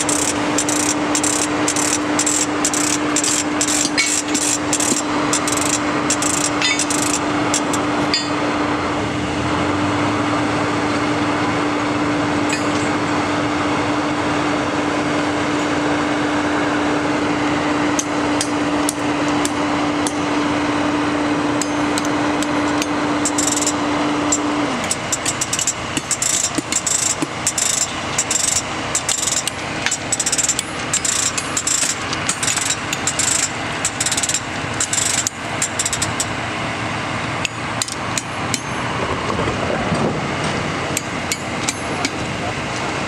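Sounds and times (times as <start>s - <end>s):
metal tools striking steel rail: 0.0s - 8.4s, 12.5s - 13.1s, 18.0s - 20.4s, 21.5s - 36.3s, 37.4s - 39.0s, 40.9s - 42.4s
machine hum: 0.0s - 43.0s
track maintenance machinery running: 0.0s - 43.0s.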